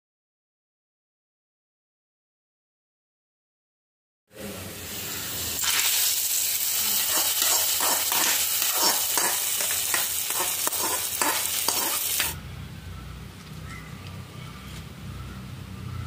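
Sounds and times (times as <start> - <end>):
hot oil sizzling and crackling: 4.6 - 12.4.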